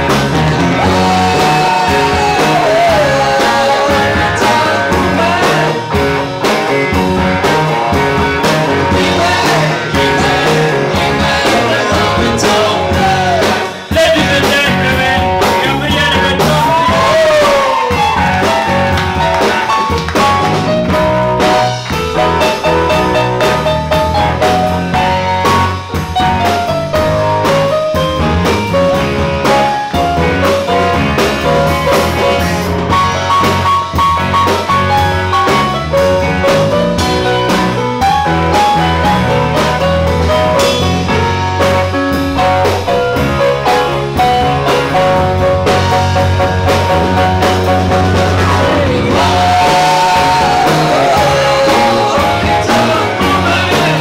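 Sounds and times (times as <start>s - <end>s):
drum kit: 0.0s - 54.0s
electric bass: 0.0s - 54.0s
electric keyboard: 0.0s - 54.0s.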